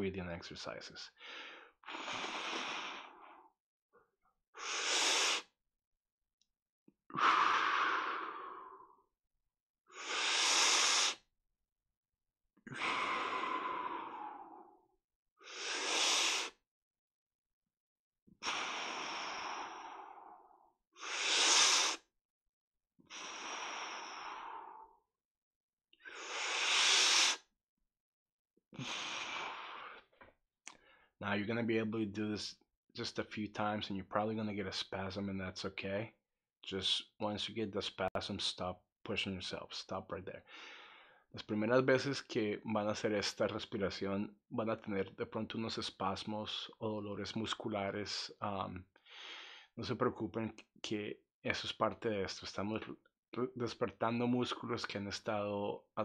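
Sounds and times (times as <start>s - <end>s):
man breathing deeply: 1.2s - 3.5s, 7.1s - 9.0s, 9.9s - 11.2s, 12.7s - 14.8s, 15.4s - 16.6s, 18.4s - 22.0s, 23.1s - 25.0s, 26.0s - 27.4s, 28.8s - 31.1s, 40.4s - 41.2s, 49.0s - 49.8s.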